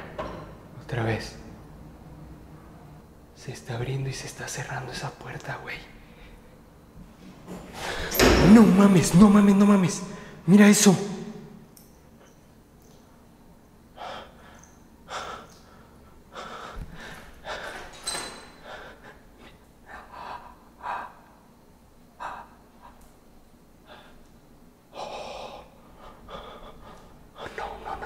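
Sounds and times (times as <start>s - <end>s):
person breathing hard and gasping: 14.0s - 18.0s, 18.6s - 21.4s, 22.2s - 23.0s, 23.8s - 24.2s, 24.9s - 28.0s.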